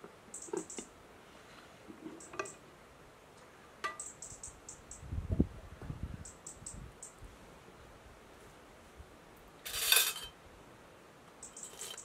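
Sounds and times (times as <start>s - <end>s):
plates and metal clinking: 9.7s - 10.4s.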